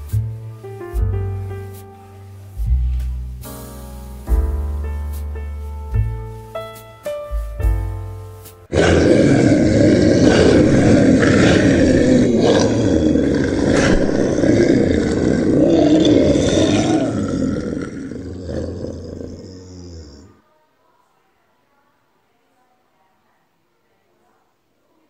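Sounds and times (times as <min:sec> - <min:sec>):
soft piano notes: 0:00.0 - 0:08.7
rough animal sound effect: 0:08.7 - 0:20.4.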